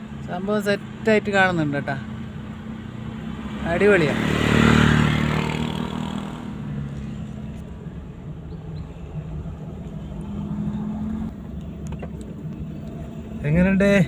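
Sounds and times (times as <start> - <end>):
road noise rumble: 0.0 - 14.0
car engine running: 5.4 - 14.0.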